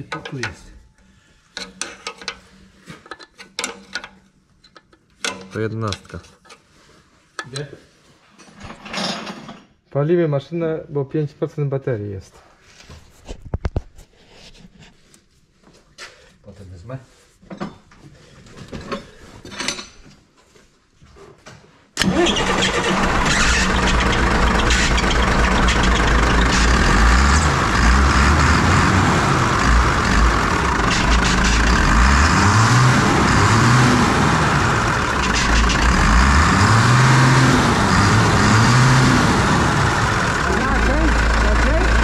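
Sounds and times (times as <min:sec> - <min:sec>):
diesel engine starting and revving: 0:22.0 - 0:42.0.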